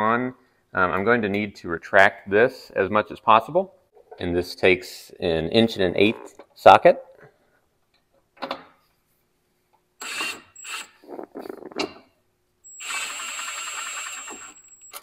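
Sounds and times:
power tool screwing: 10.0 - 11.0, 12.7 - 15.0.

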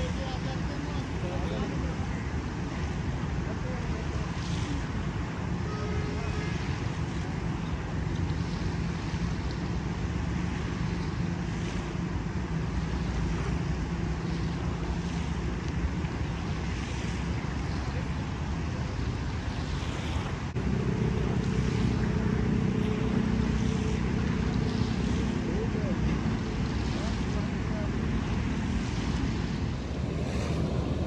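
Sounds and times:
engine running: 0.0 - 31.0
wind on microphone: 0.0 - 31.0.

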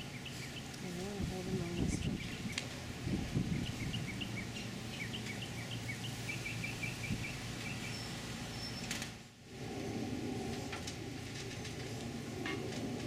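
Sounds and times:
small bird chirping: 0.0 - 0.9, 1.6 - 2.7, 3.3 - 8.9
steady low hum: 0.0 - 13.0.

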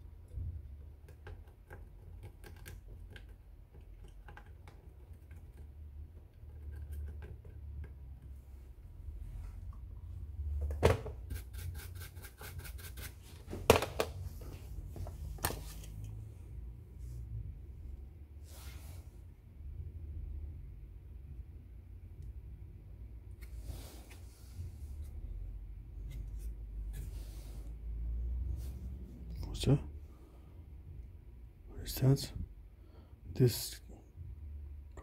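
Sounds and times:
cotton swab scrubbing circuit board: 11.2 - 13.4.

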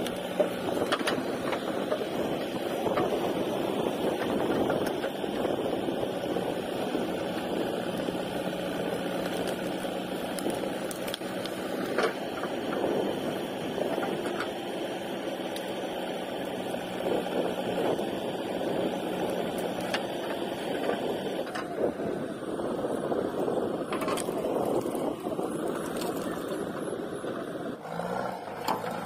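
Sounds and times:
backhoe arm digging: 0.0 - 22.0, 23.8 - 29.0
diesel engine running: 0.0 - 29.0.

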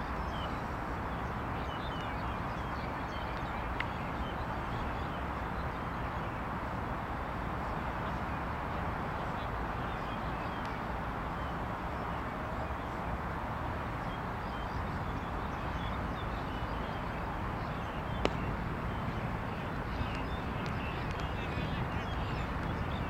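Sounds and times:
outdoor background noise: 0.0 - 23.0
sharp crack: 18.2 - 18.7.

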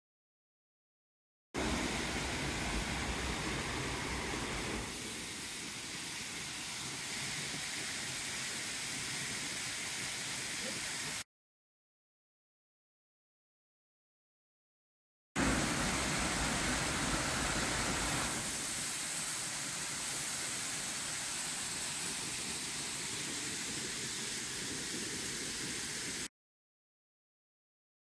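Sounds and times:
waterfall rushing: 1.6 - 11.2, 15.4 - 26.3.

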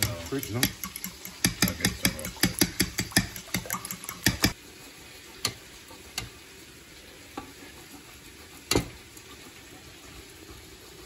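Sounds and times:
grater knocking: 0.0 - 4.6.

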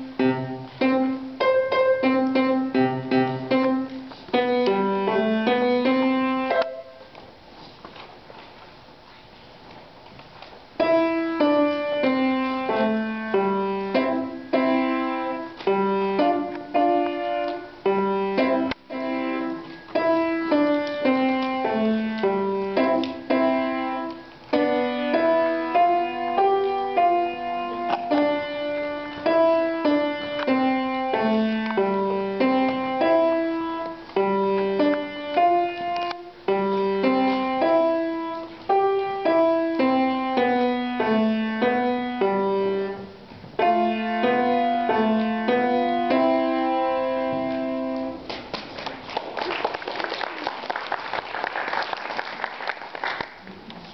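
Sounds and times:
child playing piano: 0.0 - 7.2, 10.8 - 48.2.

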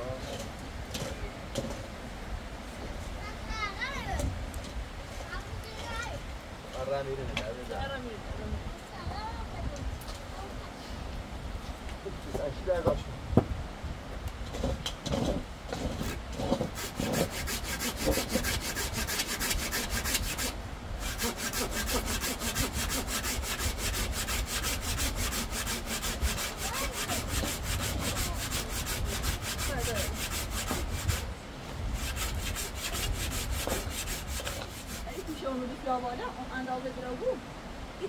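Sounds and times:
saw rasping strokes: 14.6 - 31.3, 31.9 - 35.4.

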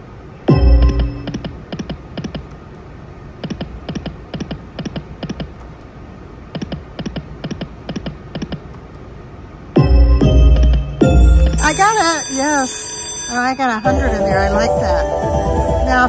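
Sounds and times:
slot machine reels clicking: 10.6 - 16.0.

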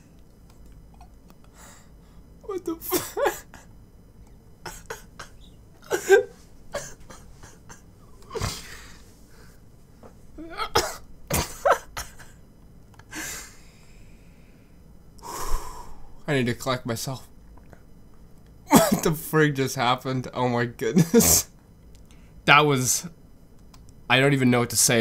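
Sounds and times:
man laughing uncontrollably: 2.5 - 3.7, 4.7 - 7.8, 11.3 - 12.4.

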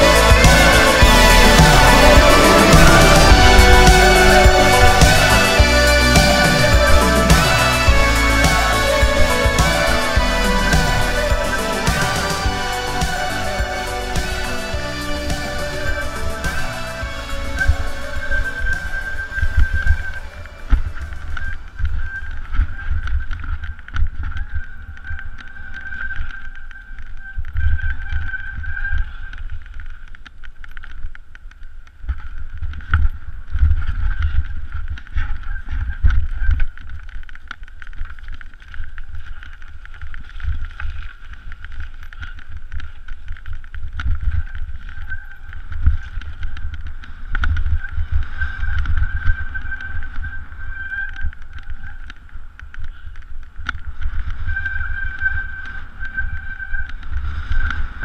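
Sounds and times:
steady high buzz: 0.0 - 22.6.

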